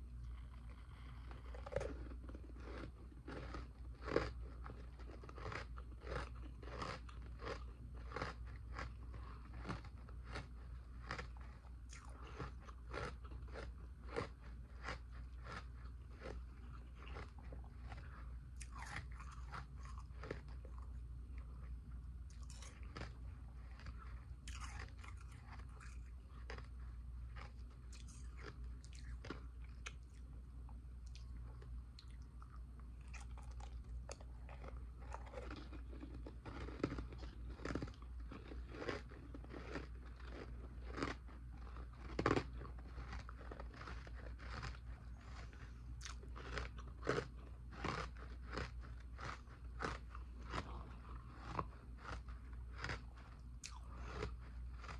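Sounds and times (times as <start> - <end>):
person chewing ice: 0.0 - 54.9.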